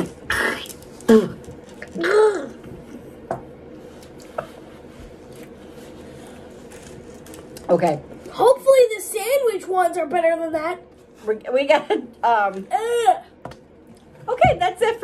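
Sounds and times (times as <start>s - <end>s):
person groaning: 2.0s - 2.6s.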